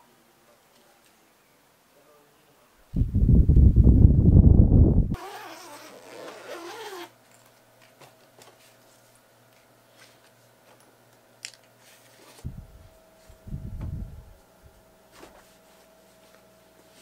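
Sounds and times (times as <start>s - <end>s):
suitcase zipper pulled: 5.2s - 7.1s
soft low thuds: 13.4s - 14.3s.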